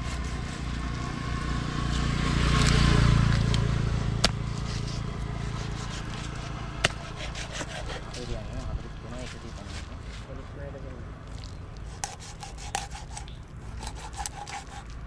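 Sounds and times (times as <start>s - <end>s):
motor vehicle passing: 0.0s - 15.0s.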